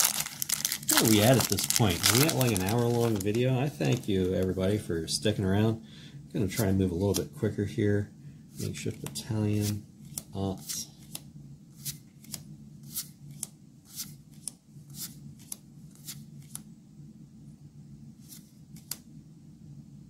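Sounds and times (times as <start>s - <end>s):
cards snapping: 11.8s - 16.6s.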